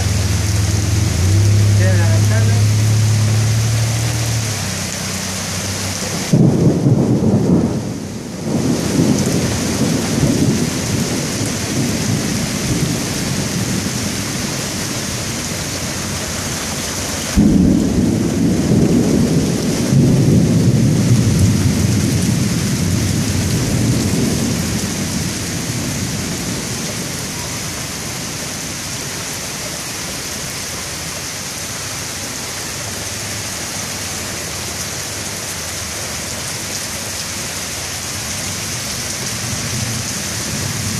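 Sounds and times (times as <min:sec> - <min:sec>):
heavy rain pouring: 0:00.0 - 0:40.9
thunder rumbling: 0:06.1 - 0:16.6, 0:17.2 - 0:28.9
thunder crack: 0:06.3 - 0:13.9, 0:17.4 - 0:26.4.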